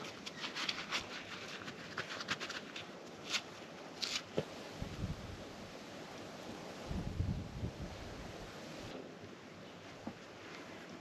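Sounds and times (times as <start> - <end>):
gloved hands rustling: 0.0 - 4.5.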